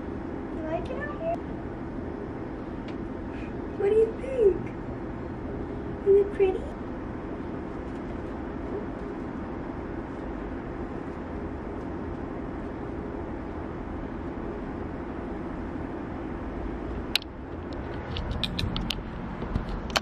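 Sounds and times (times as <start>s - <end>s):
low outdoor rumble: 0.0s - 20.0s
sharp click: 17.1s - 20.0s.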